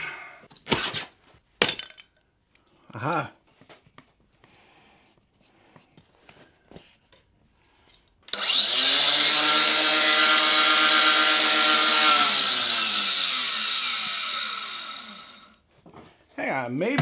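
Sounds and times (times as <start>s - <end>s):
angle grinder cutting: 8.3s - 15.6s.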